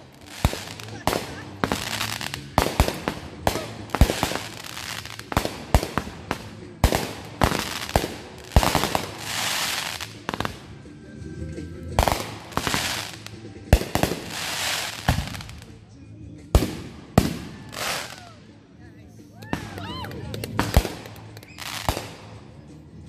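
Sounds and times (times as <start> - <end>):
fireworks bangs: 0.0 - 10.7, 12.0 - 15.8, 16.5 - 18.3, 20.5 - 22.4
fireworks crackling sparkle: 0.0 - 10.8, 12.0 - 15.9, 16.6 - 18.4, 19.5 - 22.4.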